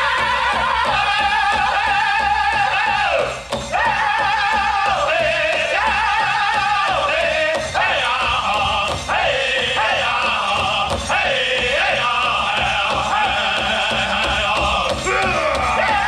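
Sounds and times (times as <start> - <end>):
large hand drum beat: 0.0 - 16.0
men singing in high sliding voices: 0.0 - 16.0.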